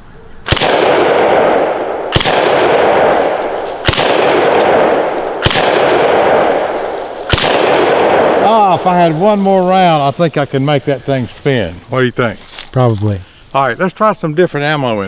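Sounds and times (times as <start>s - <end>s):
shotgun blasts with echo: 0.4s - 9.1s.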